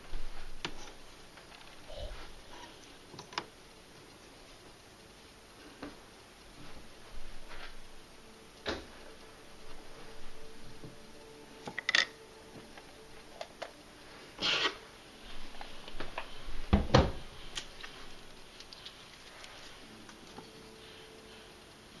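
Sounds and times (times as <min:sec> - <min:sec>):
objects rubbing: 0:14.0 - 0:16.7.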